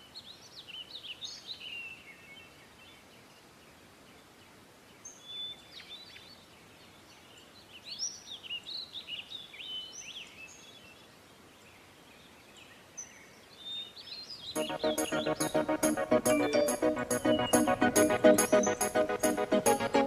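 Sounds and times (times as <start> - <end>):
faint steady hiss: 0.0 - 20.0
birds chirping and whistling: 14.5 - 20.0.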